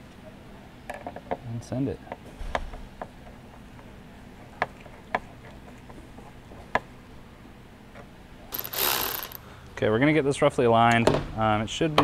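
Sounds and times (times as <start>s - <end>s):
faint steady hum: 0.0s - 12.0s
hand tool clicking: 8.6s - 9.4s.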